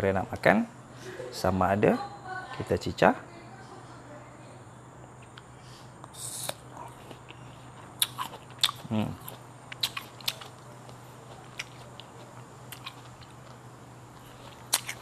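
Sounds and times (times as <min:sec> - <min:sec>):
crisp fruit being bitten: 0:06.0 - 0:13.6, 0:14.2 - 0:15.0.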